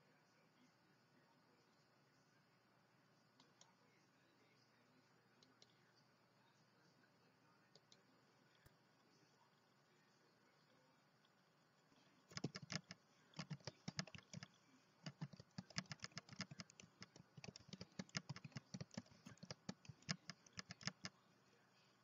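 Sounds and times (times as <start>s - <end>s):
typing on computer keyboard: 12.3s - 21.1s.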